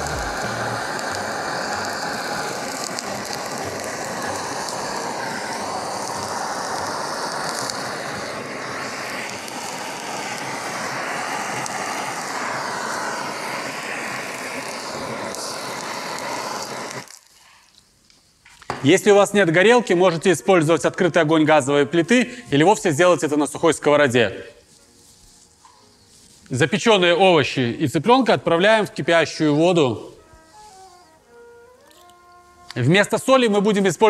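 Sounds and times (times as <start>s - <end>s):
gas blowtorch hissing: 0.0s - 17.7s, 28.4s - 34.0s.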